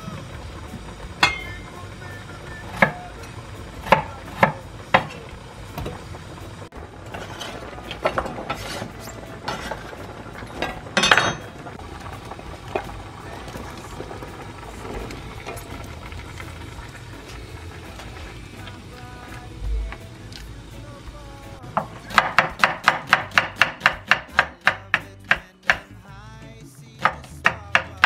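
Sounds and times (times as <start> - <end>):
utensil clacking on frying pan: 1.2 - 1.8, 2.6 - 6.0, 21.8 - 26.0, 27.0 - 28.0
knife chopping on wooden board: 22.1 - 25.9.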